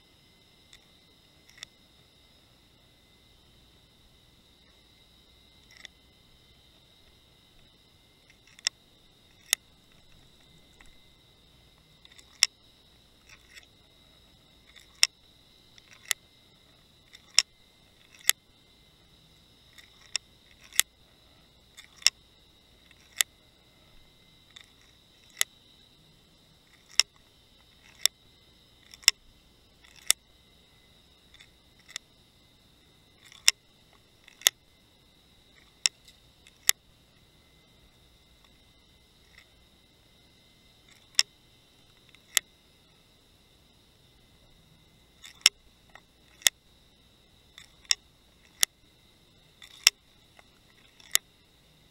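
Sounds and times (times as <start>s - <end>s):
faint high whine: 0.0s - 51.9s
sharp underwater clicks: 1.5s - 1.7s, 5.6s - 6.0s, 7.6s - 11.1s, 12.0s - 12.6s, 14.7s - 16.2s, 17.1s - 18.4s, 19.7s - 20.9s, 21.8s - 22.2s, 22.9s - 23.3s, 26.7s - 28.2s, 28.8s - 29.2s, 29.8s - 30.2s, 33.2s - 33.6s, 34.2s - 34.6s, 40.9s - 41.4s, 45.2s - 46.6s, 47.6s - 48.8s, 49.6s - 51.3s.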